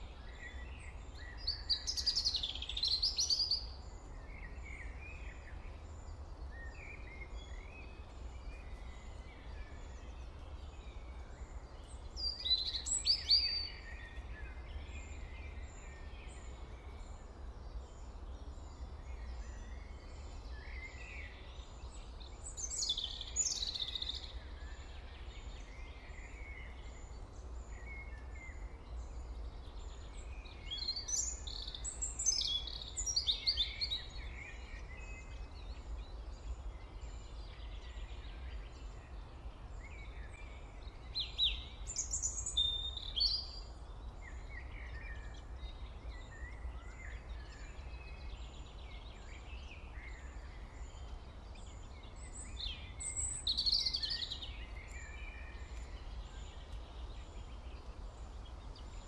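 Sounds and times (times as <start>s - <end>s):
birds chirping: 40.9s - 59.0s.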